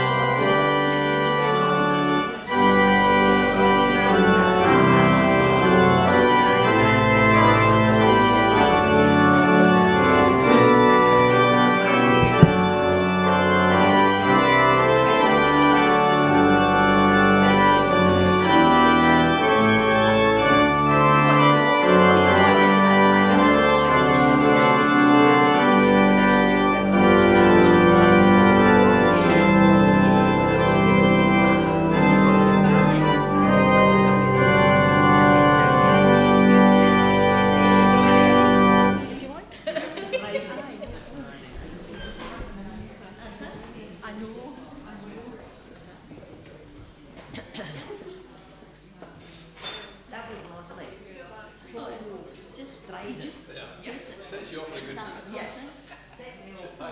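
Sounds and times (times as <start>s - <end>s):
church organ chords: 0.0s - 39.4s.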